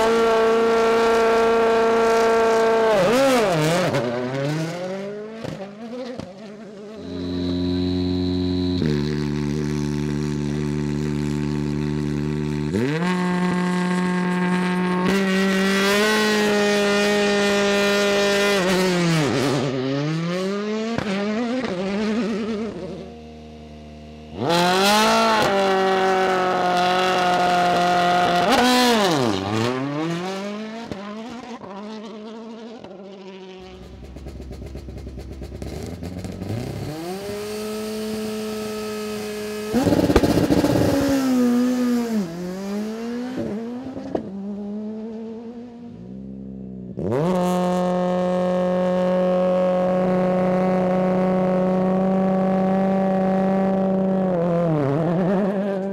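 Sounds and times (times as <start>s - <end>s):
rally cars accelerating through gears: 0.0s - 23.1s, 24.3s - 45.8s, 47.0s - 55.9s
rally car engines revving: 0.0s - 55.9s.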